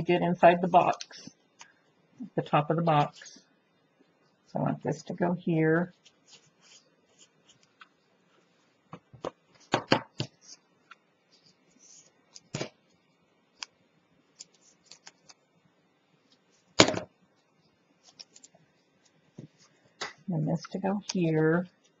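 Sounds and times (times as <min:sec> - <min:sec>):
paper and cardboard rustling and tapping: 0:08.9 - 0:11.5.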